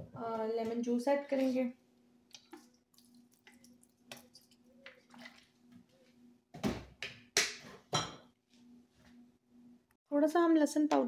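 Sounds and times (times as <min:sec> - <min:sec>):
juice trickling onto chicken: 0:02.4 - 0:05.5.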